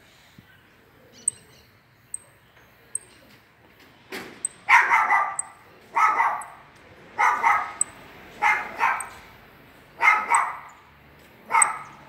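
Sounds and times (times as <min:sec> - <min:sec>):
dog barking: 0:04.7 - 0:06.6, 0:07.2 - 0:09.2, 0:10.0 - 0:10.7, 0:11.5 - 0:12.0.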